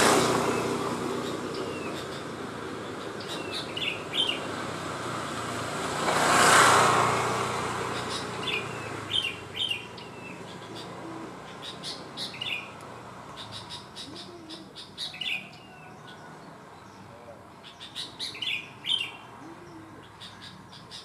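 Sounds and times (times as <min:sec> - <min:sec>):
broad rushing noise: 0:00.0 - 0:14.7
bird singing chirped phrases: 0:00.4 - 0:04.5, 0:07.9 - 0:12.8, 0:13.4 - 0:21.0.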